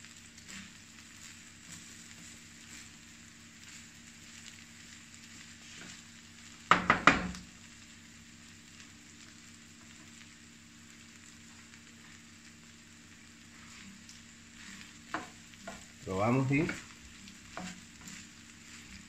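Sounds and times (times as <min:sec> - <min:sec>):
rice sizzling in a frying pan: 0:00.0 - 0:19.0
spatula stirring in pan: 0:00.3 - 0:04.6, 0:05.3 - 0:06.1, 0:13.2 - 0:19.0.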